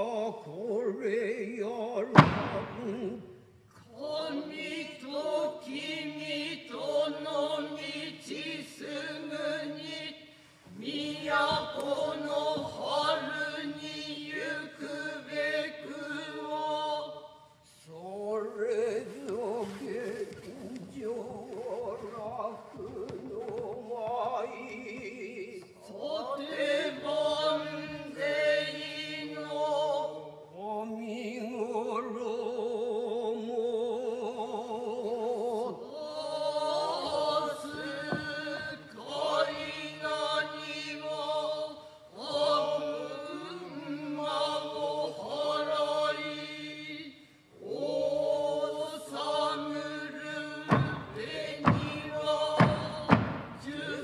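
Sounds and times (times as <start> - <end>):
chorus chanting in unison: 0.0 - 54.0
sharp thumps: 2.1 - 3.1.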